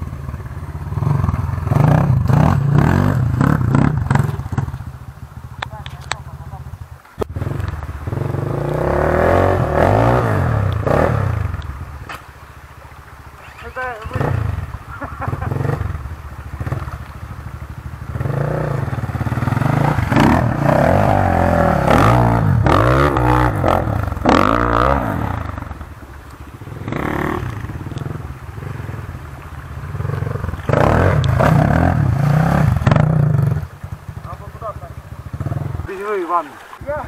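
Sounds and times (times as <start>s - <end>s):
dirt bike engines revving: 0.0s - 37.0s
water splashing: 0.0s - 37.0s.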